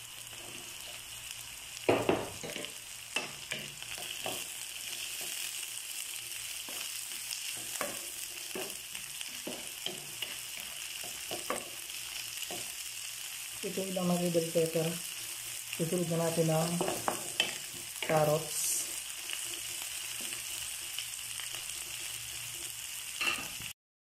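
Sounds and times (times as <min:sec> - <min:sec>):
vegetables sizzling in a wok: 0:00.0 - 0:23.8
spatula scraping and knocking pan: 0:01.9 - 0:05.5, 0:06.6 - 0:12.8, 0:16.7 - 0:18.2, 0:18.9 - 0:21.0.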